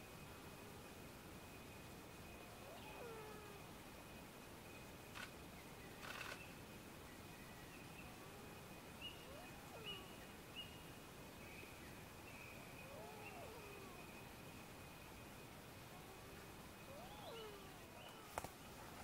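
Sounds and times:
distant loon wailing calls: 2.4 - 3.7, 9.2 - 10.2, 12.8 - 14.2, 15.9 - 18.4.

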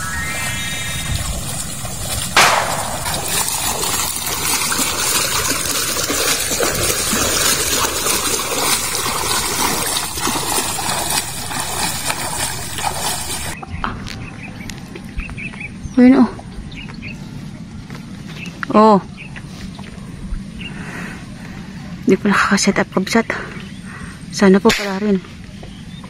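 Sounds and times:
rising run of tones: 0.0 - 4.0
sharp whoosh hit: 0.0 - 4.2
footsteps splashing in water: 1.5 - 13.6.

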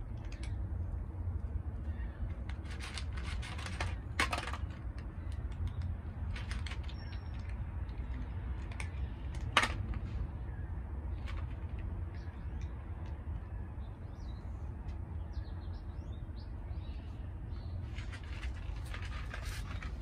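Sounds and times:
steady low rumble: 0.0 - 20.0
cats crunching dry kibble: 2.2 - 10.2, 11.1 - 13.2, 17.8 - 20.0.

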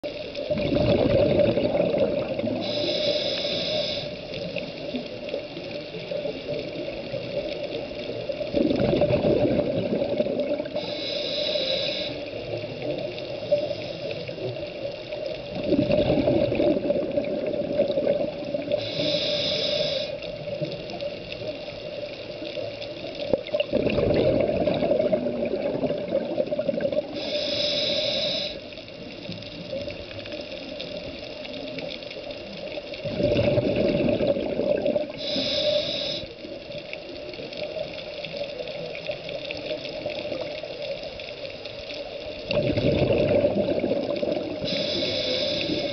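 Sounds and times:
exhaled bubbles rushing: 0.4 - 2.7, 8.3 - 10.8, 15.4 - 18.8, 23.3 - 27.2, 33.0 - 35.2, 42.4 - 44.8
regulator inhalation hiss: 2.5 - 4.6, 10.7 - 12.6, 13.3 - 14.6, 18.6 - 20.4, 27.0 - 28.8, 35.1 - 36.6, 44.5 - 45.9.

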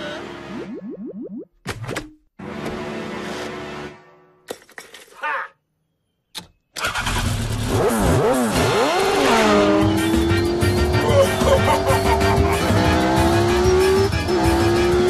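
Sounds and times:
click: 6.3 - 6.6
cartoon motorbike engine revving: 6.8 - 15.0.

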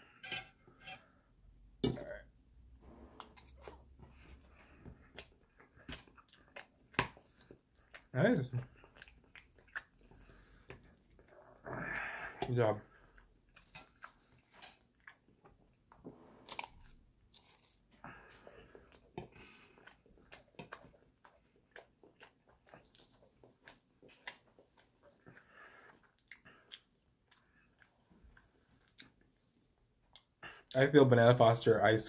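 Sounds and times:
person chewing with mouth clicks: 3.2 - 11.4, 13.1 - 17.8, 18.4 - 29.5.

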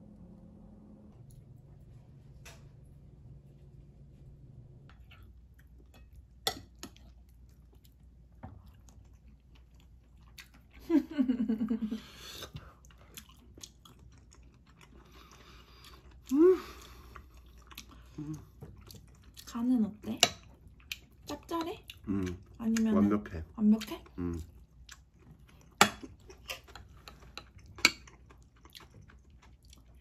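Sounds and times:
people chewing: 4.9 - 30.0.

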